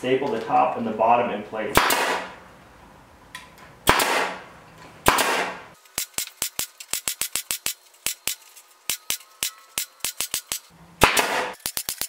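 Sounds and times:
pneumatic stapler shots: 1.8s - 2.3s, 3.8s - 4.4s, 5.0s - 12.0s
rapid sharp clicks: 5.8s - 12.0s.

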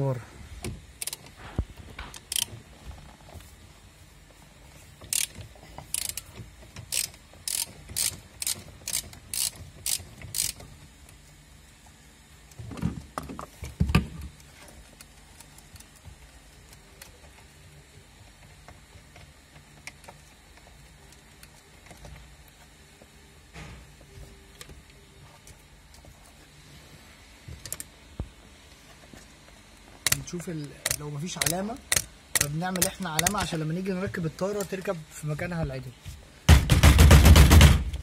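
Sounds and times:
socket ratchet clicking: 1.0s - 1.3s, 2.1s - 2.5s, 5.1s - 10.7s, 30.8s - 33.4s.

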